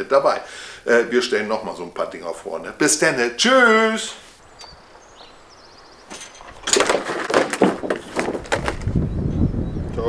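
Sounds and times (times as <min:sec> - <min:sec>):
gear knocking and rustling: 0:06.1 - 0:09.0
wind rumbling on microphone: 0:08.0 - 0:10.0.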